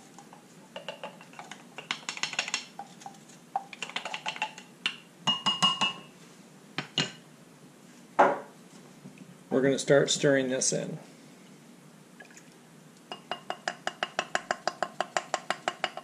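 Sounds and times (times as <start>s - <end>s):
wooden spoon knocking glass jug: 13.1s - 16.0s.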